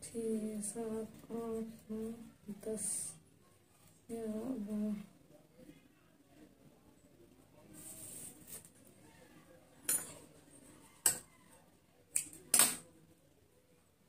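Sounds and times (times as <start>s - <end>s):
soft rustle: 7.6s - 9.2s
small objects clicking on table: 12.1s - 12.8s.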